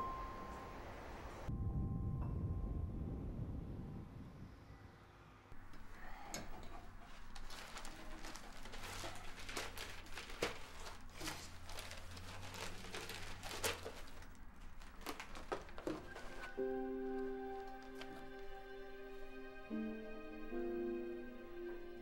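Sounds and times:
papers rustling: 5.6 - 19.2.

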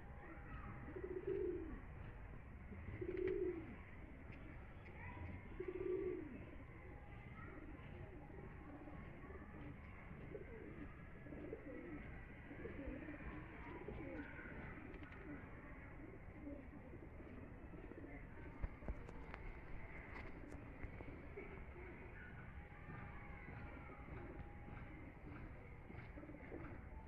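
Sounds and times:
pigeons cooing: 0.0 - 27.0.

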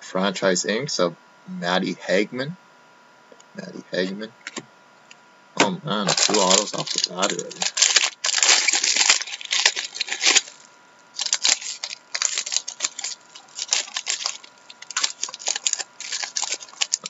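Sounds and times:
plastic wrapping crinkling: 6.0 - 17.0.

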